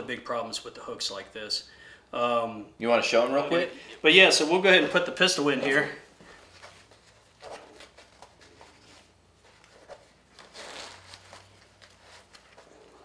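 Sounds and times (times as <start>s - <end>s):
fabric rustling: 5.5s - 13.0s.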